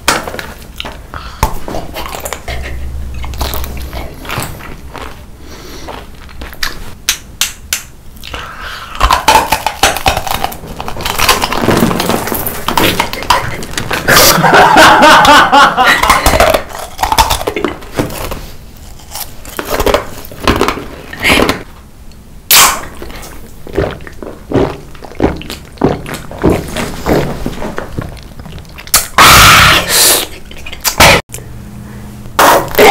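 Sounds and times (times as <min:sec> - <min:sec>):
crunching and chewing snacks: 0:01.8 - 0:06.8, 0:08.2 - 0:14.4, 0:15.8 - 0:21.6
gulping drink: 0:23.0 - 0:27.2.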